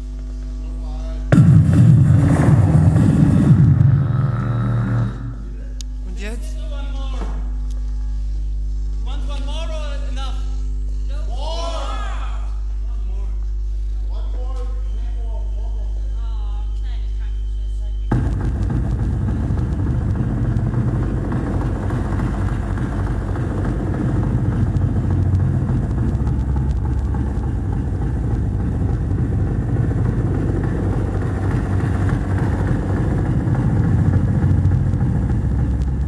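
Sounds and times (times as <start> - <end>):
distorted electronic noise music: 0.0 - 6.8, 17.6 - 36.0.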